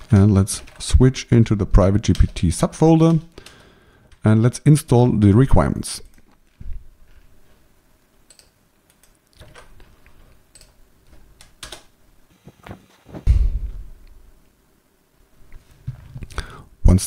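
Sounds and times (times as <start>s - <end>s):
keyboard keys clicking: 1.9s - 3.6s, 8.2s - 11.9s.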